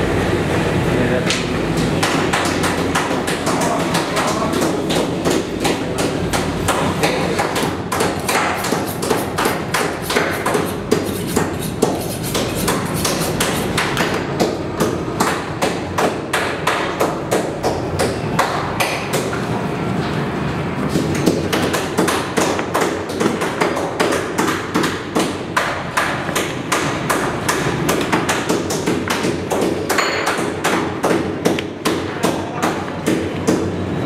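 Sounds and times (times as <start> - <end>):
room noise: 0.0 - 34.0
knives striking cutting boards: 2.0 - 19.4.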